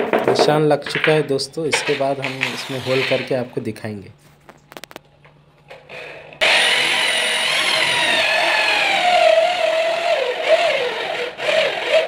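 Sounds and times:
drill bit cutting into wood: 6.4s - 12.0s
electric drill motor whine: 6.4s - 12.0s.

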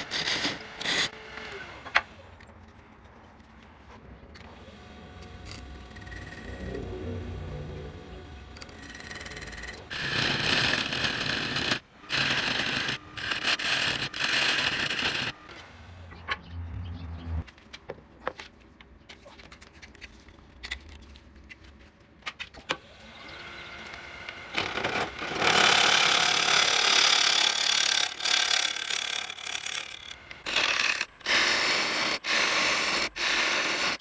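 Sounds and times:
low hum: 4.3s - 11.1s
wood lathe cutting: 7.9s - 15.6s, 23.3s - 34.0s.

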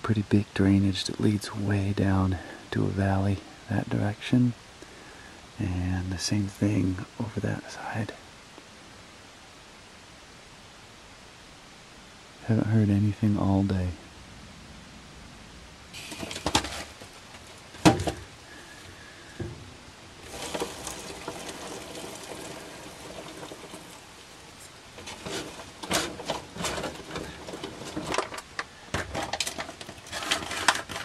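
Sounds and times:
hissy noise: 0.0s - 30.8s
foil pouch crinkling: 16.0s - 17.9s, 25.0s - 31.0s.

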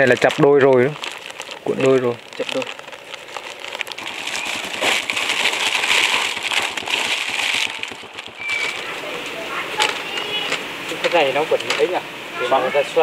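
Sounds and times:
plastic wire crinkling: 0.0s - 11.9s
brief high squeak: 8.4s - 8.8s.

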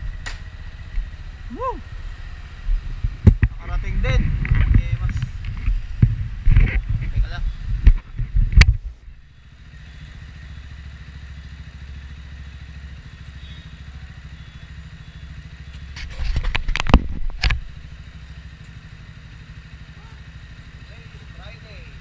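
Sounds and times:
motorcycle engine idling: 0.0s - 22.0s
loud knocks and scrapes: 15.9s - 17.6s.

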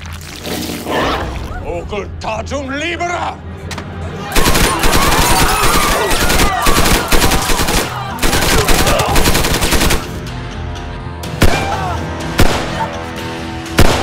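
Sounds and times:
voices crying out: 4.2s - 9.5s
automatic gunfire bursts: 4.4s - 10.1s.

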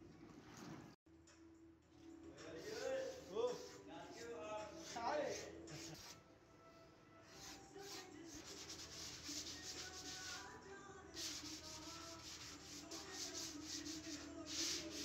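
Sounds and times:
hand sanding clay basin: 2.6s - 6.2s, 7.3s - 10.5s, 11.2s - 15.0s.

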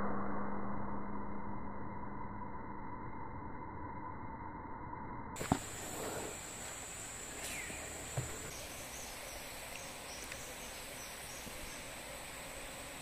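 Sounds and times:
falling bird call: 5.4s - 11.9s
high-pitched insect drone: 5.4s - 13.0s
soft knock: 8.1s - 8.7s.

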